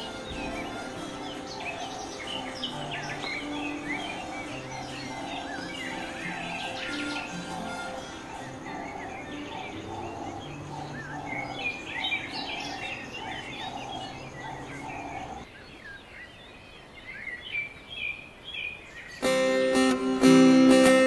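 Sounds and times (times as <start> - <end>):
low pulsing bird call: 0.0 - 16.0
birds chirping and singing: 0.0 - 20.0.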